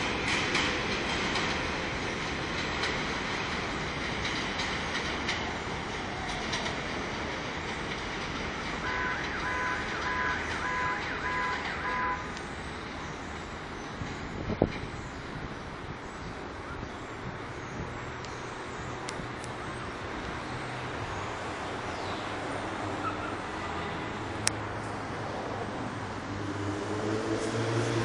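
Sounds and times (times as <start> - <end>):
clicks over rail joints: 0.0 - 15.0
train wheels rumbling on rail: 0.0 - 28.0
short beeps: 9.0 - 12.3.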